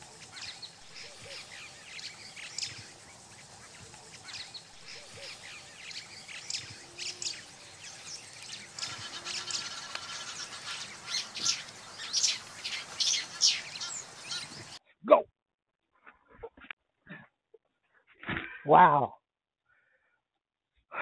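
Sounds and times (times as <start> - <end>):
wild birds chirping and calling: 0.0 - 14.8.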